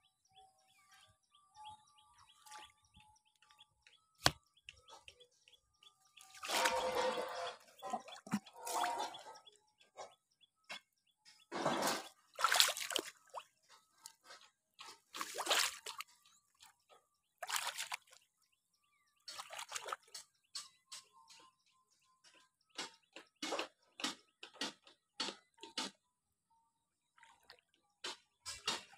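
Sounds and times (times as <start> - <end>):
wading through water: 6.2 - 9.5, 11.6 - 16.8, 17.4 - 18.2, 19.3 - 20.1.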